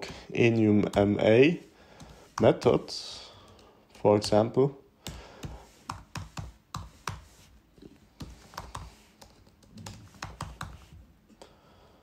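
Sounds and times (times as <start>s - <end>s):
computer keyboard typing: 5.4s - 7.3s, 8.2s - 10.9s.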